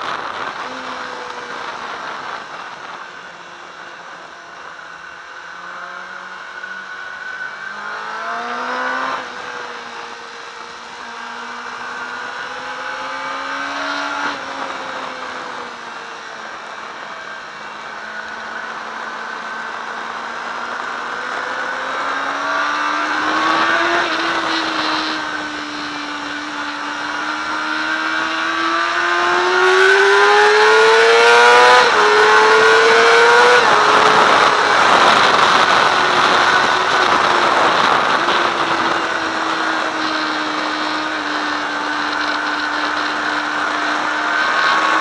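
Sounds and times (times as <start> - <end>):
wind rush on microphone: 0.0 - 4.8, 19.5 - 45.0
motorcycle engine revving: 0.0 - 45.0.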